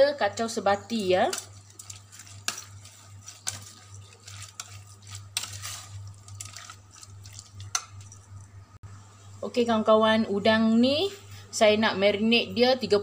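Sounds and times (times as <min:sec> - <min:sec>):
wet squelching: 0:01.5 - 0:08.5.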